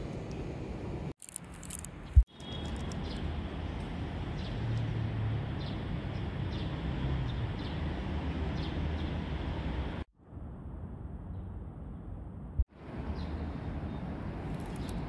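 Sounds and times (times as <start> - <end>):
outdoor rumble and hiss: 0.0 - 15.0
small bird chirping: 14.6 - 15.0.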